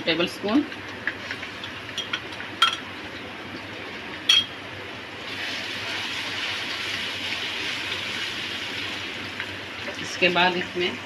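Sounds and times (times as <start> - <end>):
onions sizzling in hot oil: 5.2 - 11.0.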